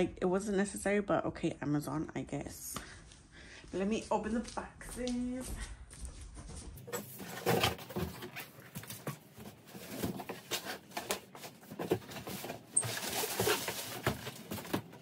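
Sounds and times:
cardboard box scraping and rustling: 6.8s - 15.0s.

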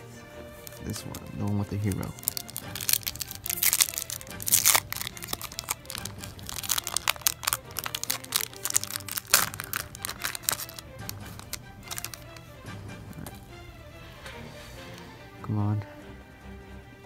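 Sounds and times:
foil wrapper tearing and crinkling: 0.6s - 12.5s.

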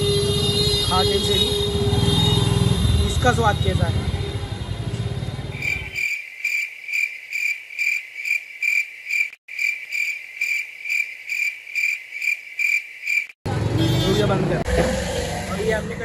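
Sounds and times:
street sound: 0.0s - 16.0s
crickets chirping: 5.5s - 13.4s.

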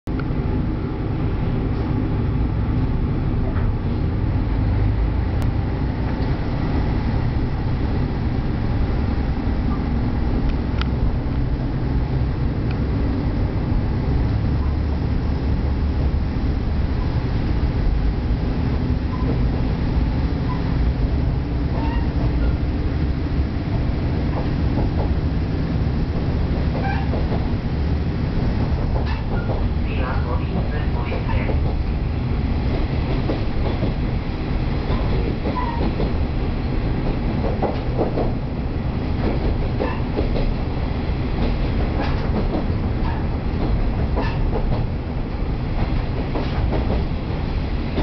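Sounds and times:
diesel engine drone: 0.1s - 32.7s
train wheels rumbling: 0.1s - 48.0s.

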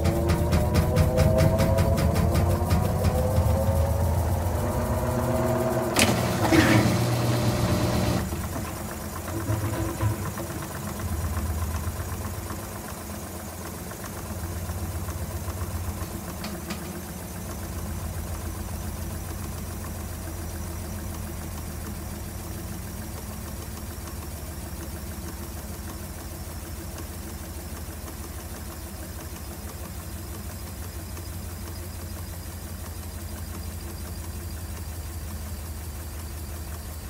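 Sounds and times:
washing machine drive humming: 0.0s - 37.0s.

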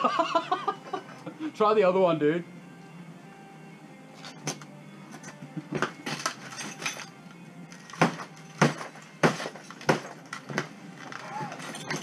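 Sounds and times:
glass breaking: 6.0s - 7.1s, 7.8s - 12.0s
hand tool smashing a tv: 7.8s - 12.0s.

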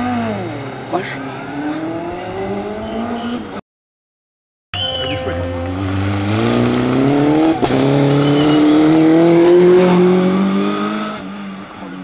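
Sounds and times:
racing engine accelerating: 0.0s - 3.6s, 4.8s - 11.6s.

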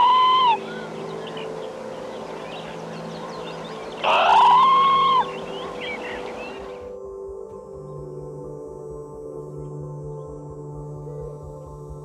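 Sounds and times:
parrot calling: 0.0s - 1.5s, 4.0s - 6.7s
faint high chirping: 0.0s - 6.9s
soft background music: 0.0s - 12.0s.

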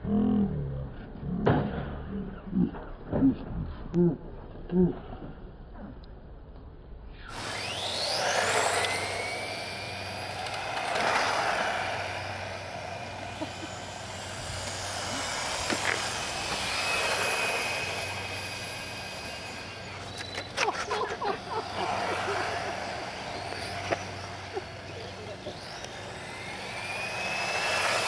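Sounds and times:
electric motors whining: 7.2s - 28.0s
tyres rushing on asphalt: 8.1s - 28.0s.

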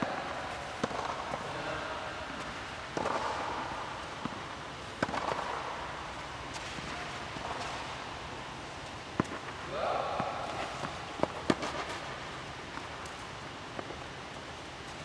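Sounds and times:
tennis ball hit by racket: 0.0s - 8.0s, 9.1s - 12.9s.

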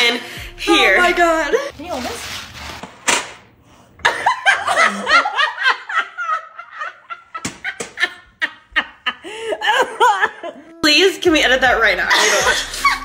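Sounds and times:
women laughing hard: 4.0s - 10.8s, 12.0s - 13.0s.

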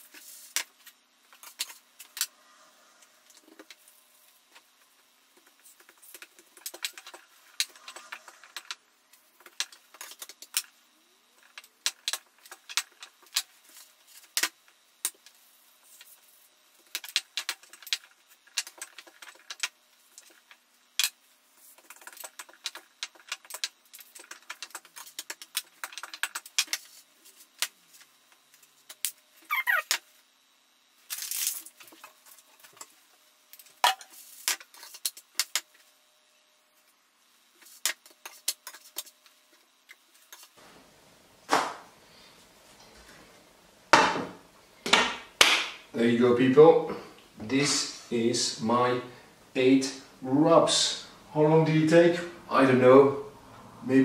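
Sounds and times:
short falling squeak: 29.5s - 29.9s.

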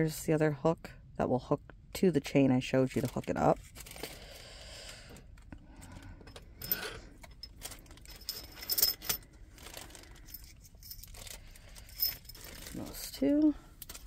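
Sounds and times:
plastic bags crinkling: 2.8s - 5.2s, 7.4s - 8.6s, 9.4s - 14.0s
small metal parts clinking: 6.2s - 14.0s.

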